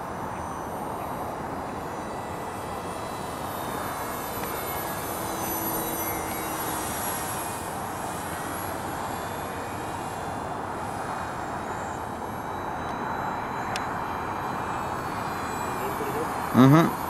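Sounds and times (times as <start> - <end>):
electric motor and propeller whirring: 0.0 - 17.0.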